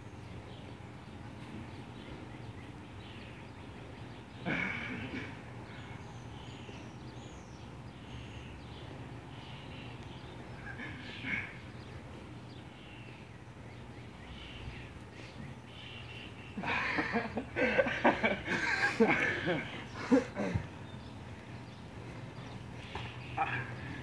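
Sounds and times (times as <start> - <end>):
small birds chirping: 0.0 - 24.0
steady low hum: 0.0 - 24.0
loud voices: 23.0 - 24.0.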